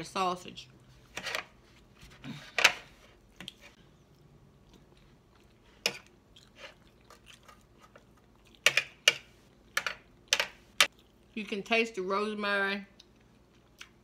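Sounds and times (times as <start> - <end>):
chewing: 3.4 - 8.6, 10.9 - 11.4, 13.0 - 14.0.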